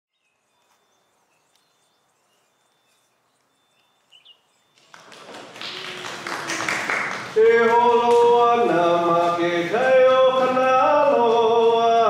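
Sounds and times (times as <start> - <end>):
soft bird chirps: 0.1 - 5.0
steady outdoor hiss: 0.2 - 12.0.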